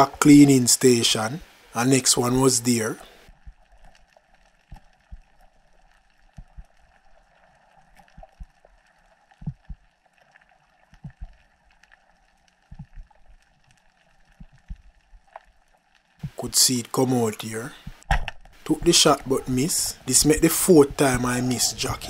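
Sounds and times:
faint underwater hiss: 0.0 - 3.5
low dull thumps: 9.4 - 9.8.

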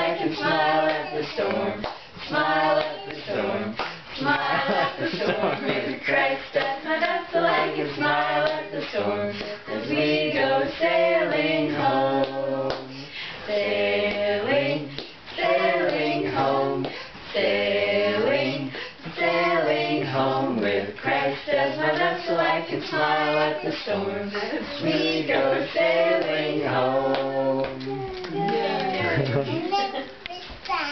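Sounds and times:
small child singing: 0.0 - 3.4, 21.5 - 25.8, 27.6 - 30.9
women singing unaccompanied: 0.0 - 29.7.

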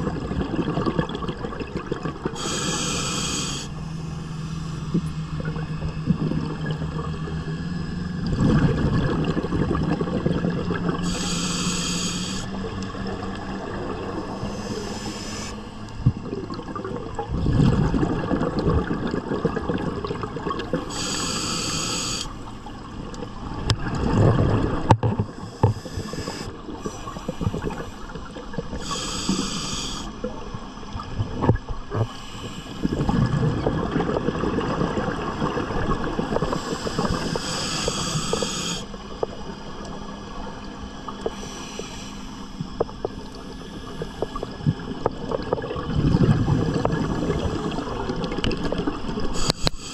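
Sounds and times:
exhaust bubbles rumbling underwater: 0.0 - 49.9
regulator hiss on inhalation: 2.4 - 3.7, 11.0 - 12.5, 14.4 - 15.6, 20.9 - 22.3, 25.5 - 28.1, 28.8 - 30.1, 36.5 - 38.9, 41.3 - 42.5, 49.4 - 49.9.

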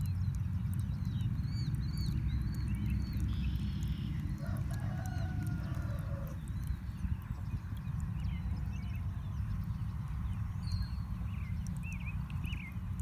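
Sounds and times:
small birds chirping: 0.0 - 13.0
steady low rumble: 0.0 - 13.0
rooster crowing: 4.4 - 6.4.

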